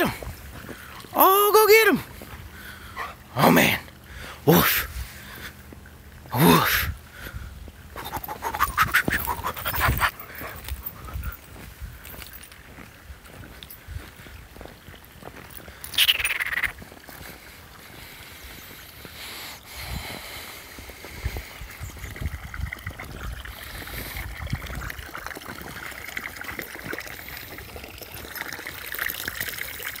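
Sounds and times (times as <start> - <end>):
footsteps crunching through snow: 8.0 - 16.2.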